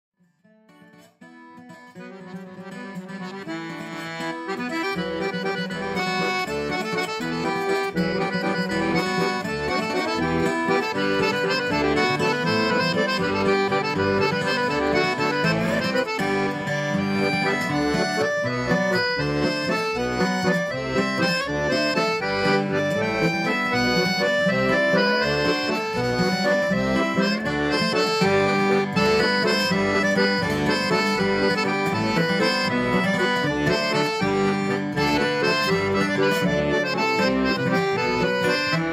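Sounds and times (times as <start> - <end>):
accordion tune over steady beat: 0.9 - 38.9.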